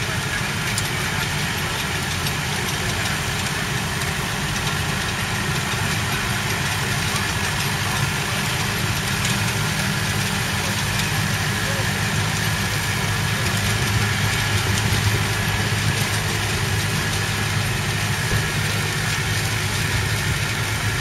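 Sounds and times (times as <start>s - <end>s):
hay tedder: 0.0s - 21.0s
tractor diesel engine running: 0.0s - 21.0s.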